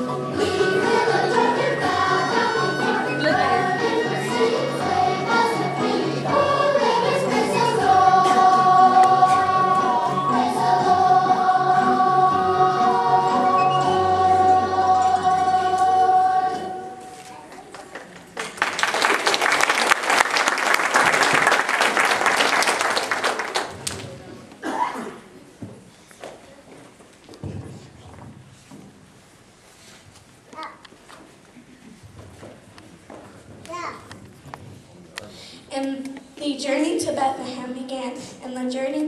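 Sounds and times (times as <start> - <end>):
children singing: 0.0 - 17.1
audience applauding: 17.5 - 24.2.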